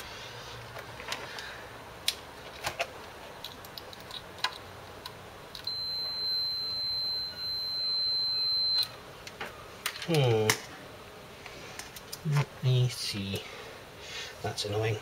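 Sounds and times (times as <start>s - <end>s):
multimeter high-pitched beep: 5.6s - 8.9s.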